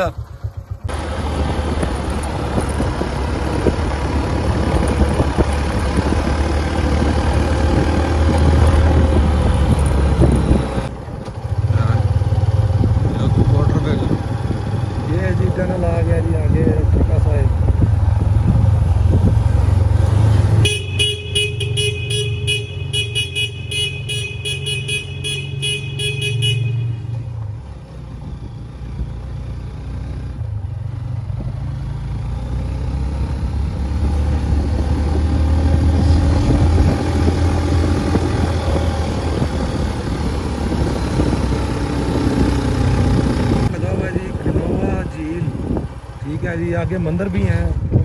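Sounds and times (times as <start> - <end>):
motorcycle engine rumbling: 0.0 - 48.0
pulsing horn: 20.6 - 27.2.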